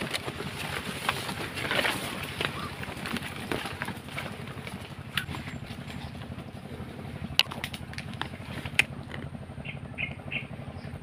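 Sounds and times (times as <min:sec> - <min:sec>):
twigs snapping: 0:07.3 - 0:09.3.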